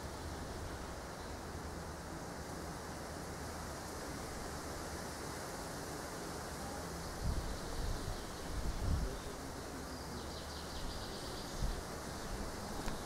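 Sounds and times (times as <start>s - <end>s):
steady hiss of air: 0.0s - 13.0s
wind gusts buffeting microphone: 7.2s - 9.3s.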